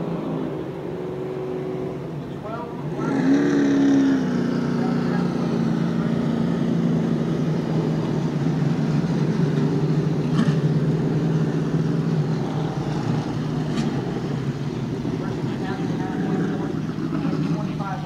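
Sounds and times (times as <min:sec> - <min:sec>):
race car engines droning: 0:00.0 - 0:18.0.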